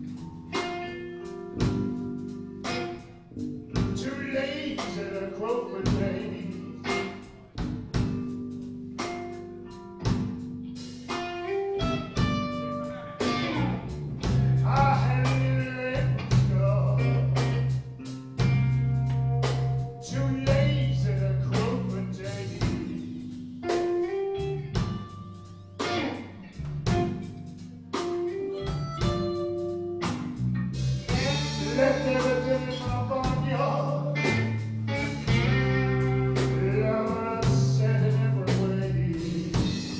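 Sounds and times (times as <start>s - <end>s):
bass guitar: 0.0s - 39.9s
drum kit: 0.0s - 39.9s
electric guitar: 0.0s - 39.9s
harmonica wailing: 28.4s - 30.1s.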